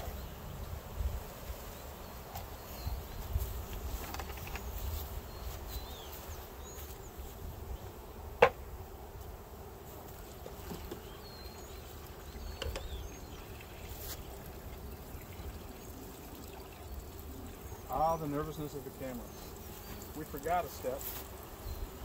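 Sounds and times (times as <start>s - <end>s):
bees buzzing: 0.0s - 22.0s.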